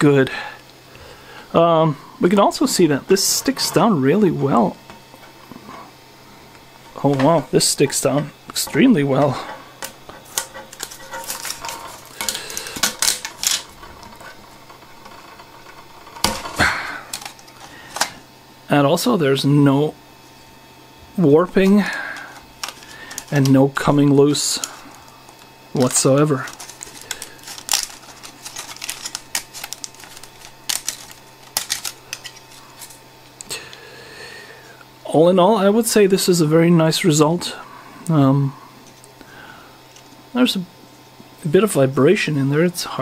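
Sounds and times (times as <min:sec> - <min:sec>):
scraping crackle: 0:07.0 - 0:18.2, 0:21.4 - 0:33.0
plastic part clicking and scraping: 0:09.8 - 0:18.2, 0:22.3 - 0:23.6, 0:25.3 - 0:33.0.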